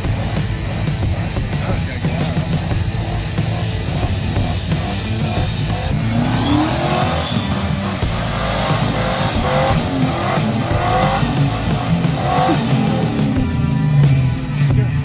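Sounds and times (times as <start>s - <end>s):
tires spinning in snow: 0.0s - 14.6s
pickup engine revving hard: 0.0s - 15.0s.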